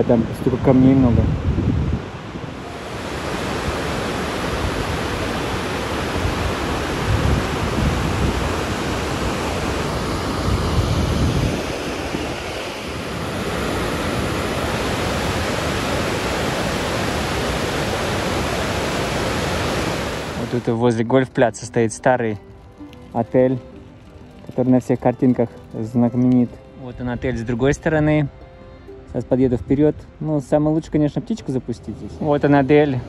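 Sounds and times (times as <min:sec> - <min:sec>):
wind buffeting microphone: 0:00.0 - 0:20.6, 0:22.4 - 0:33.0
waterfall and rapids rushing: 0:00.0 - 0:21.2.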